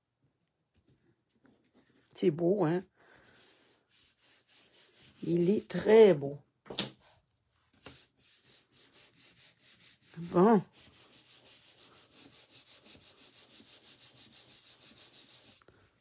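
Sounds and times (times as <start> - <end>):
palms rubbing over card: 3.1 - 6.1, 7.0 - 16.0.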